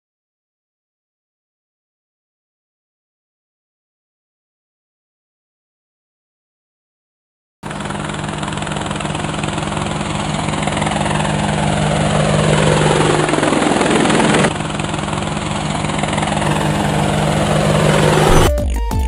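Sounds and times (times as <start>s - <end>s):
drone propellers buzzing: 7.7s - 18.6s
falling sweep: 16.0s - 18.6s.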